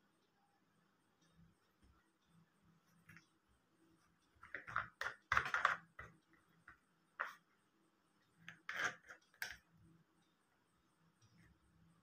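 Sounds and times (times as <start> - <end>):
plastic clicks and rubs: 8.4 - 9.7.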